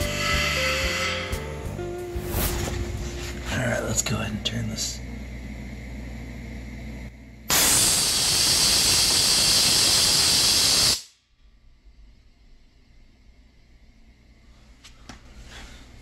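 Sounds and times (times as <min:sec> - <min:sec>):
compressed air hissing from drain: 0:00.0 - 0:01.8, 0:07.5 - 0:11.1.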